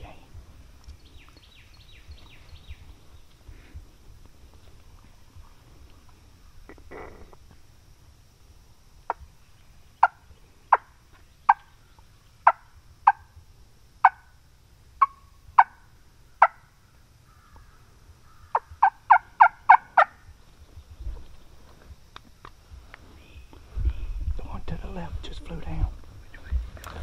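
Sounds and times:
turkey clucks and yelps: 15.0 - 15.8, 18.5 - 20.2.

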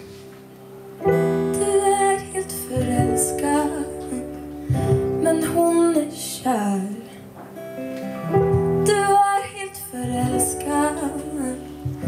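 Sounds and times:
woman singing: 1.4 - 7.2, 8.7 - 12.0.

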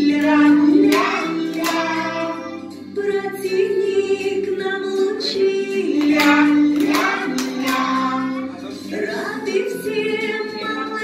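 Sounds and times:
woman and children singing: 0.0 - 11.0.

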